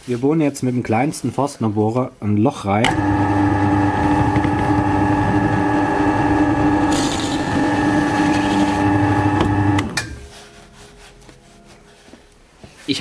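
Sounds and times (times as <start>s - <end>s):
drill press motor hum: 2.8s - 10.0s
drill bit rasping into wood: 2.9s - 10.0s.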